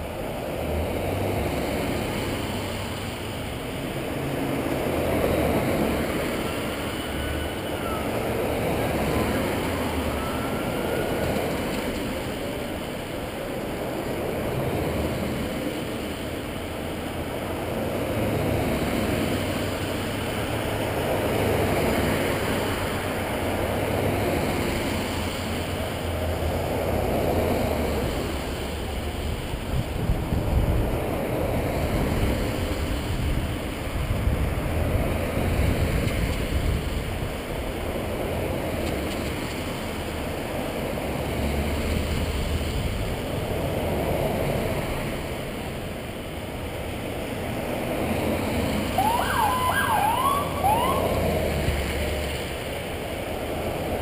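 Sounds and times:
vehicles passing: 0.0 - 54.0
emergency siren whoops: 6.4 - 11.8, 49.0 - 51.3.

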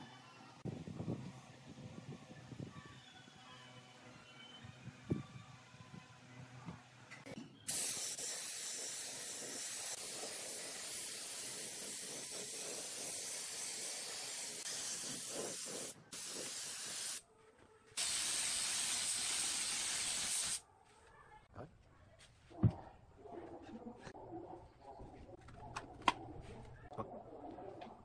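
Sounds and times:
spray gun hissing: 7.7 - 17.2, 18.0 - 20.6.

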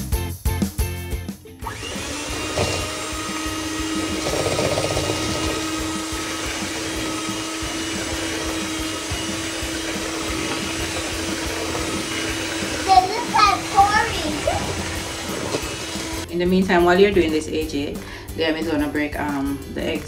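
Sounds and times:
background music: 0.0 - 20.0
electric mixer humming: 1.6 - 16.3.

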